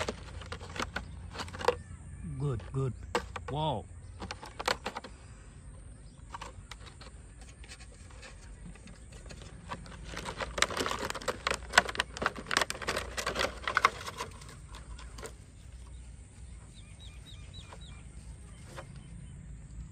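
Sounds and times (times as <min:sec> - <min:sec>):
plastic bottle crackling and clattering: 0:00.0 - 0:01.9, 0:02.6 - 0:03.6, 0:04.2 - 0:05.3, 0:06.1 - 0:16.0.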